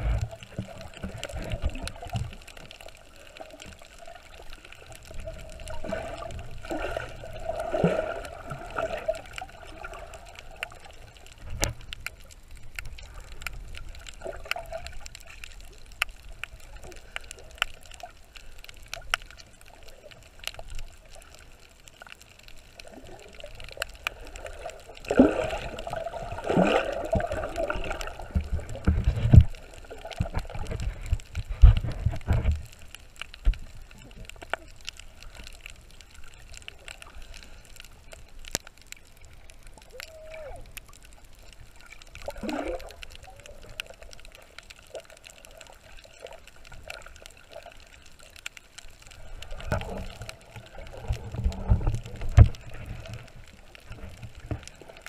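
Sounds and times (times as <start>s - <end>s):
muffled underwater gurgling: 0.0s - 3.3s, 39.8s - 41.2s.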